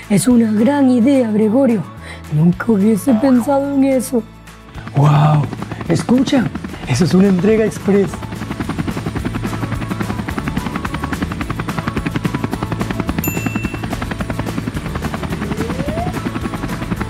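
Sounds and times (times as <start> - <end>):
helicopter rotor chop: 4.6 - 17.0
rising tone: 15.1 - 16.5.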